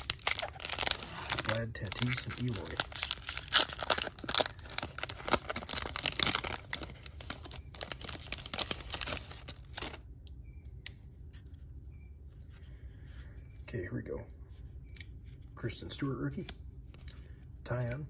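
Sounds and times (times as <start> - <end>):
foil wrapper crinkling and tearing: 0.0 - 10.0.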